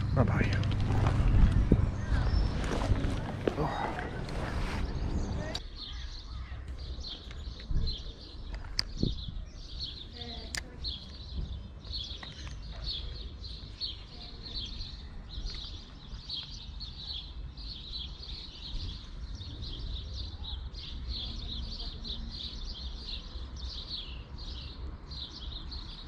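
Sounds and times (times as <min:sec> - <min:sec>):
steady low rumble: 0:00.0 - 0:05.6
songbirds twittering: 0:00.0 - 0:26.0.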